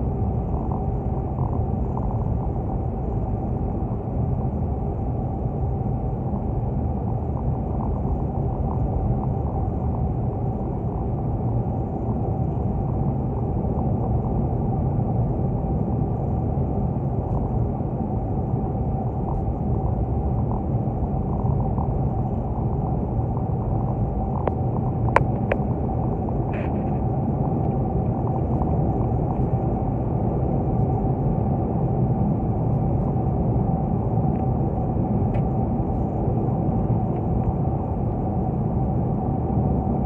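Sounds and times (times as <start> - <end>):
thin steady hum: 0.0 - 40.0
car road noise at highway speed: 15.3 - 40.0.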